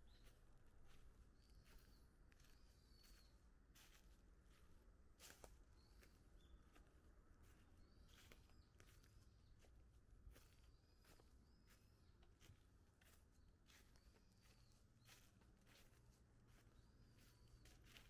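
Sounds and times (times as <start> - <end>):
bird chirping: 1.4 - 3.4, 13.0 - 18.0
footsteps crunching through leaves: 12.4 - 18.0.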